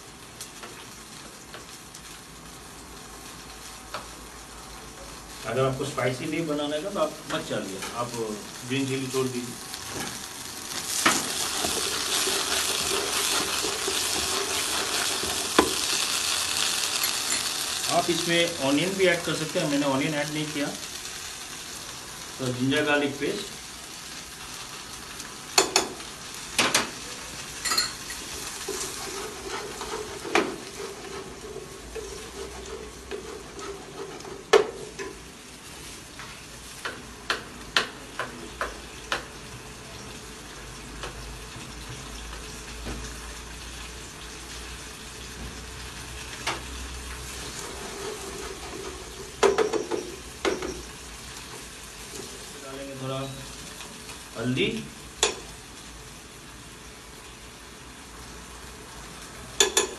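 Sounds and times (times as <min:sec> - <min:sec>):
food sizzling in hot oil: 0:00.0 - 0:59.9
wooden spatula stirring: 0:10.9 - 0:16.2, 0:28.2 - 0:35.2, 0:47.3 - 0:49.4
utensils knocking on pan: 0:25.6 - 0:26.0, 0:49.2 - 0:50.9, 0:59.6 - 0:59.9.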